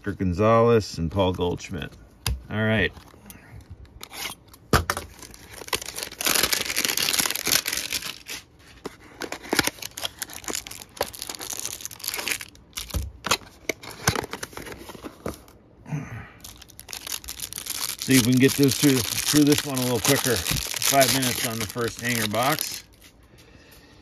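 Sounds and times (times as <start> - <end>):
cellophane crinkling: 5.1 - 15.5, 16.4 - 23.2
cardboard ripping: 5.2 - 8.5, 16.6 - 23.0.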